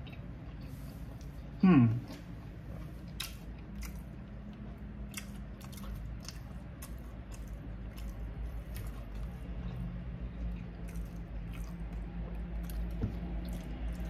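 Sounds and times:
close-up chewing of crispy food: 0:00.0 - 0:14.0.

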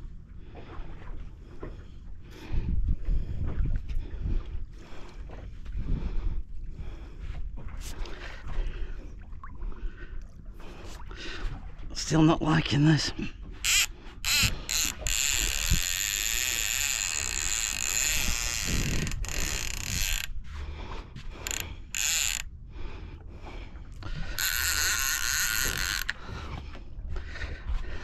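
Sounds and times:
fishing reel buzzing: 0:13.6 - 0:20.4, 0:21.4 - 0:22.5, 0:24.2 - 0:26.3.

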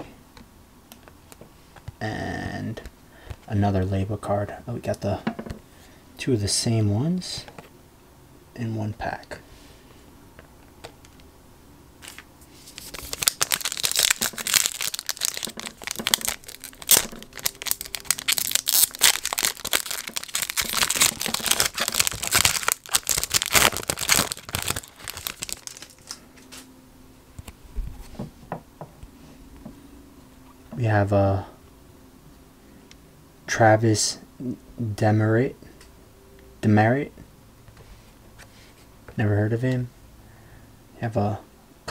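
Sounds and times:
foil wrapper tearing and crinkling: 0:12.0 - 0:26.2.

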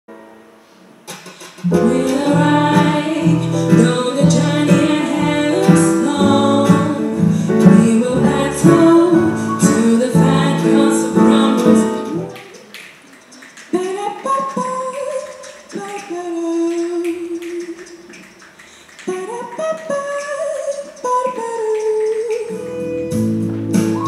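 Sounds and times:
woman singing into a microphone: 0:01.7 - 0:12.6, 0:13.7 - 0:18.0, 0:19.0 - 0:22.6
instrumental accompaniment with bass beat: 0:22.6 - 0:24.0.

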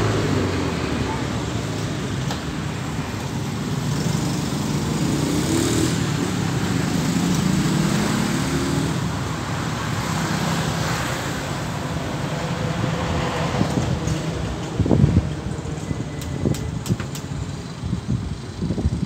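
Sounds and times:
street traffic: 0:00.0 - 0:19.0
motorcycle passing: 0:03.5 - 0:09.1.

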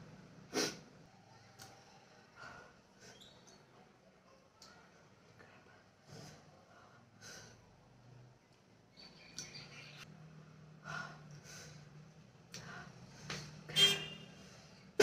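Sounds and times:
person panting: 0:10.8 - 0:12.0.

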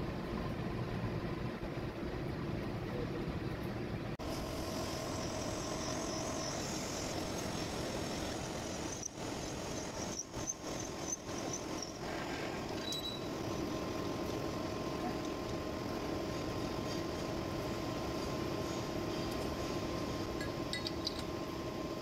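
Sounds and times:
lathe machine hum: 0:04.2 - 0:22.0
drill cutting whine: 0:04.8 - 0:13.7.

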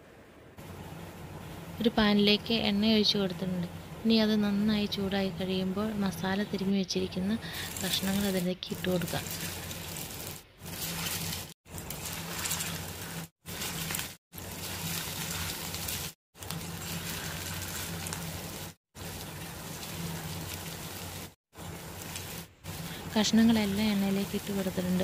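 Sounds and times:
low steady hum: 0:00.0 - 0:25.0
chicken sizzling in hot oil: 0:07.4 - 0:25.0.

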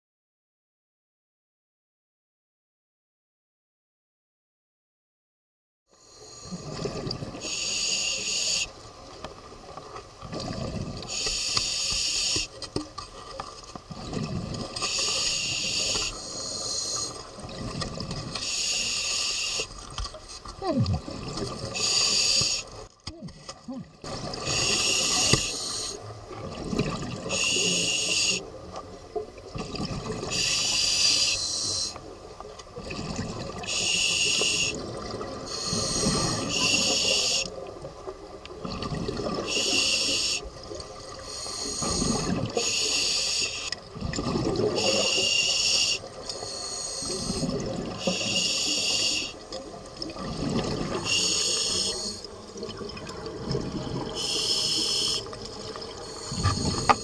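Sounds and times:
regulator hiss on inhale: 0:06.0 - 0:06.8, 0:07.4 - 0:08.8, 0:11.1 - 0:12.7, 0:14.8 - 0:17.3, 0:18.4 - 0:19.8, 0:21.7 - 0:22.8, 0:24.4 - 0:26.1, 0:27.3 - 0:28.5, 0:30.3 - 0:32.1, 0:33.6 - 0:34.8, 0:35.4 - 0:37.6, 0:39.5 - 0:40.5, 0:41.1 - 0:43.8, 0:44.8 - 0:49.5, 0:51.0 - 0:52.4, 0:54.2 - 0:55.4, 0:56.0 - 0:57.0
bubbling exhalations underwater: 0:10.3 - 0:11.0, 0:20.6 - 0:21.8, 0:32.8 - 0:33.8, 0:38.6 - 0:39.7, 0:43.9 - 0:45.2, 0:47.2 - 0:48.3, 0:50.0 - 0:51.2, 0:52.0 - 0:54.4.

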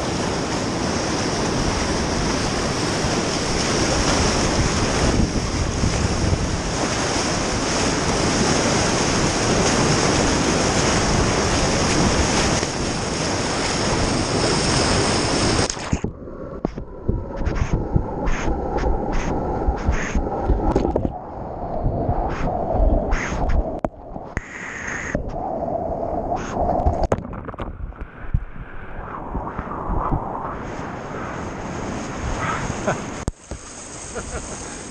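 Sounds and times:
whitewater rushing and crashing: 0:00.0 - 0:16.0, 0:29.0 - 0:34.9
wind noise on microphone: 0:00.0 - 0:34.9.

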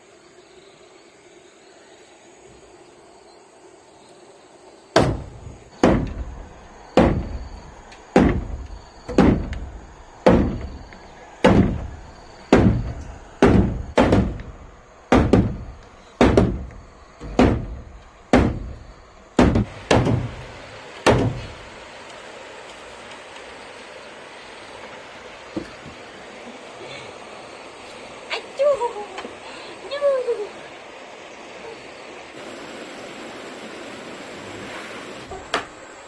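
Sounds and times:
wooden mallet knocking on timber: 0:05.0 - 0:06.3, 0:08.2 - 0:10.8, 0:11.4 - 0:11.9, 0:12.5 - 0:14.5, 0:15.1 - 0:18.8, 0:19.4 - 0:20.4, 0:21.0 - 0:21.5.

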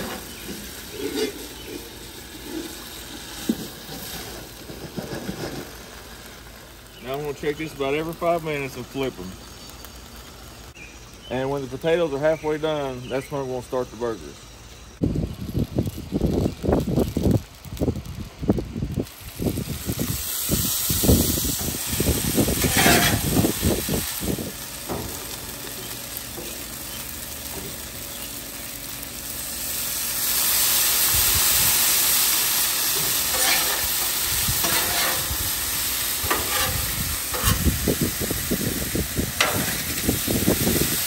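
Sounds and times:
potatoes sizzling on a griddle: 0:00.0 - 0:41.0
spatula scraping and knocking: 0:22.6 - 0:23.3, 0:34.6 - 0:35.3.

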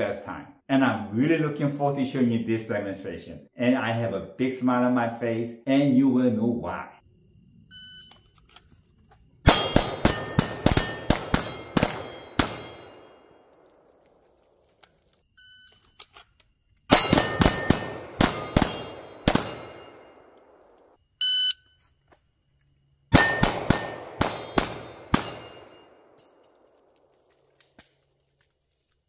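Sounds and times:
electronic timer beep: 0:07.7 - 0:08.2, 0:21.2 - 0:21.7
pistol fire: 0:09.4 - 0:14.1, 0:16.9 - 0:21.0, 0:23.1 - 0:26.9
steel targets ringing: 0:09.5 - 0:13.4, 0:16.9 - 0:20.4, 0:23.1 - 0:26.5.

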